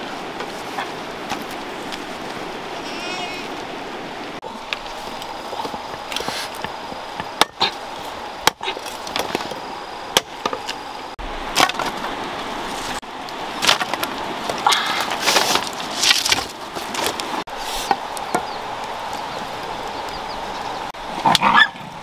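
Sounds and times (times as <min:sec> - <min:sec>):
wood scraping and knocking: 0:13.6 - 0:18.5.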